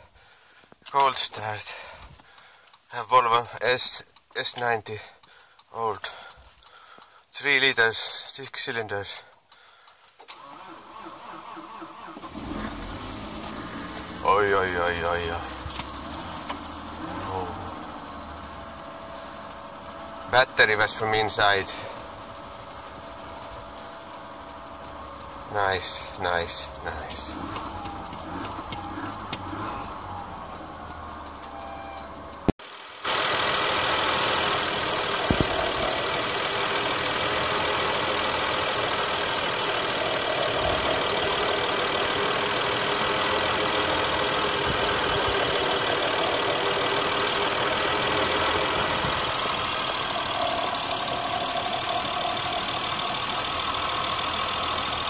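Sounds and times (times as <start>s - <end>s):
car engine idling: 9.0s - 55.0s
steady high whine: 12.9s - 32.5s, 33.5s - 55.0s.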